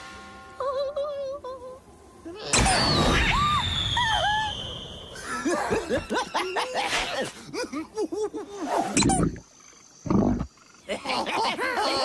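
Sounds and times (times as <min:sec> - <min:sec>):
rushing burst with falling whistle: 0:02.6 - 0:05.4
cartoon character squeaky laughter: 0:05.4 - 0:07.3.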